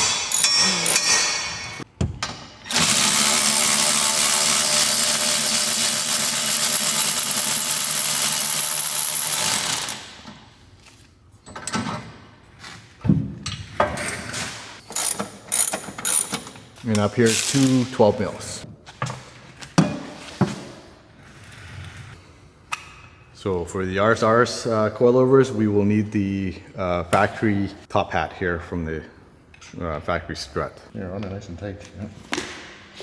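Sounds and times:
cordless power tool running: 0:02.7 - 0:10.0.

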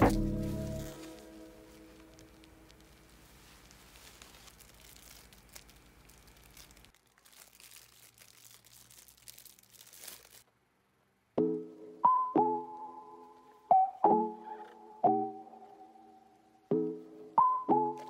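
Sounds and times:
plastic packaging crinkling: 0:00.0 - 0:10.5.

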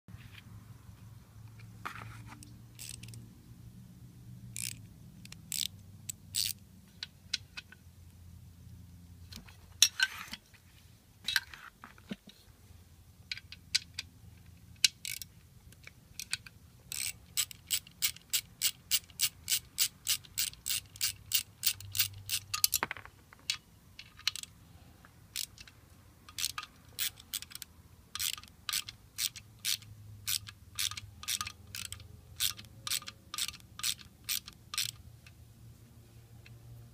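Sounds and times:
socket ratchet clicking: 0:02.4 - 0:03.3, 0:04.5 - 0:07.8, 0:13.3 - 0:22.9, 0:23.5 - 0:24.5, 0:25.3 - 0:35.4.

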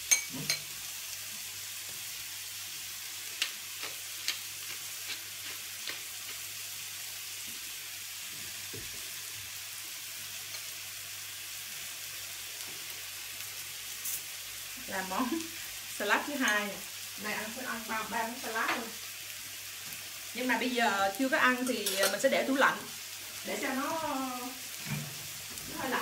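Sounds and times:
spoon clinking on ceramic bowl: 0:00.0 - 0:00.6
patties sizzling in a frying pan: 0:00.0 - 0:26.0.

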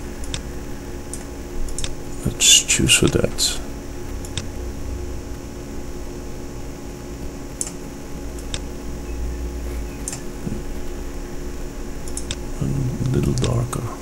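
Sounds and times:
low room hum: 0:00.0 - 0:14.0
computer mouse clicks: 0:01.1 - 0:02.0, 0:07.6 - 0:07.8, 0:10.0 - 0:10.2, 0:12.0 - 0:12.4.

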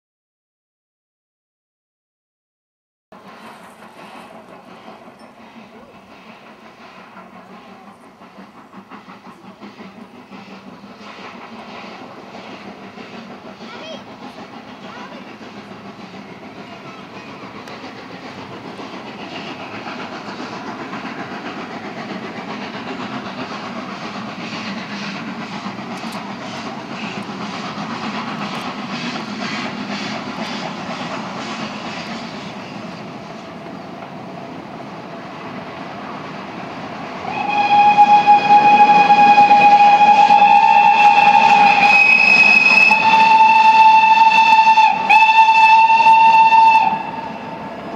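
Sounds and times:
steam locomotive exhaust beats: 0:03.2 - 0:47.9
steam whistle: 0:37.2 - 0:47.7.

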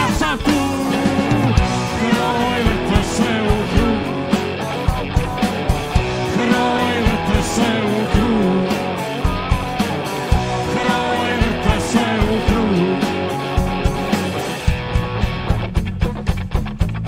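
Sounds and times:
man singing: 0:00.0 - 0:04.7, 0:06.0 - 0:09.3, 0:10.3 - 0:13.7
bass guitar: 0:00.0 - 0:17.0
drums keeping a beat: 0:00.0 - 0:17.0
electric guitars: 0:00.0 - 0:17.0.

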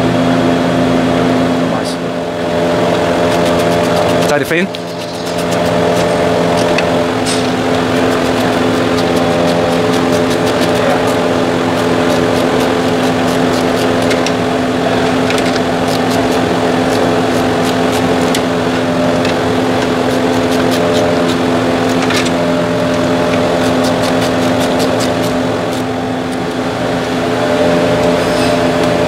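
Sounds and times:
steady machine drone: 0:00.0 - 0:29.0.

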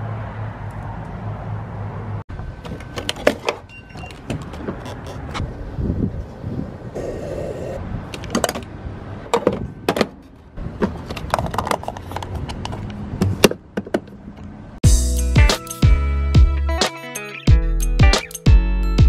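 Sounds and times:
guitar music: 0:14.8 - 0:18.9.

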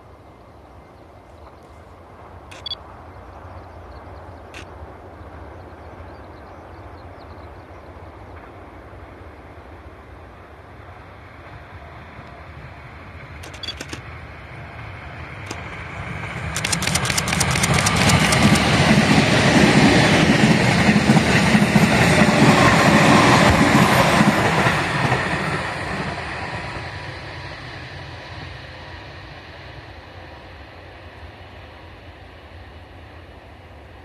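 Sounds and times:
electric train passing fast: 0:00.0 - 0:34.0
train wheel clacks: 0:16.4 - 0:26.6.

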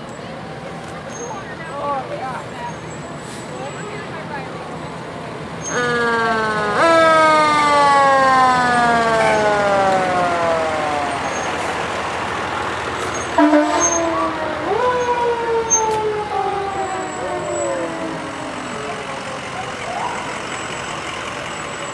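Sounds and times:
rumble of passing trucks: 0:00.0 - 0:21.9
fire truck siren: 0:05.6 - 0:21.9
horn blast: 0:09.2 - 0:09.7, 0:13.3 - 0:14.5.

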